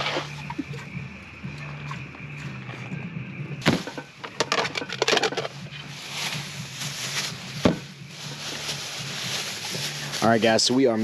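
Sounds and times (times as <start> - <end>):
plastic bags crinkling: 8.2 - 10.7.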